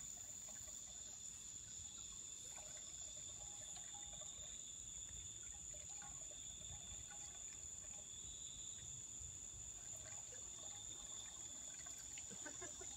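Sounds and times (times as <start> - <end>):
night insect chorus trilling: 0.0 - 12.9.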